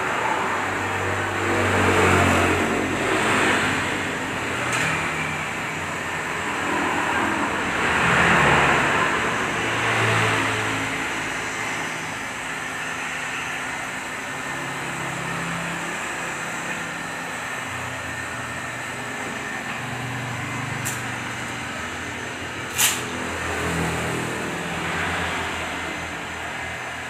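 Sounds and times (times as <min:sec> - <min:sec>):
heat gun hissing: 0:19.3 - 0:23.4.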